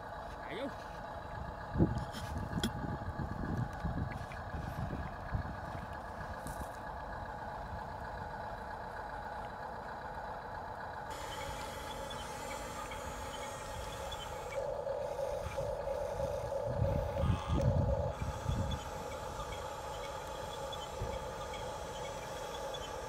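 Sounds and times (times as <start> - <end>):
electric motors whining: 11.0 - 23.0.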